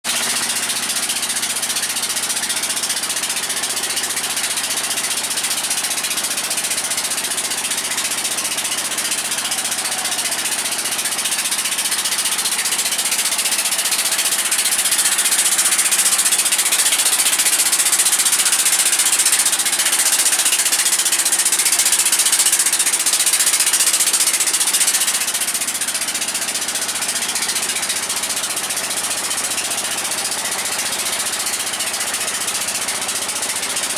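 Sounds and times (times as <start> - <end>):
boat engine running: 0.1 - 33.9
rattle: 0.1 - 33.9.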